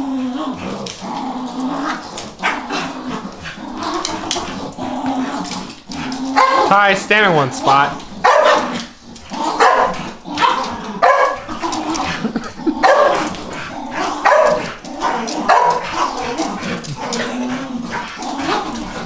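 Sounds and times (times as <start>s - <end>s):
dog barking: 6.4s - 6.8s, 8.2s - 8.8s, 9.6s - 11.5s, 12.8s - 13.3s, 14.2s - 16.2s.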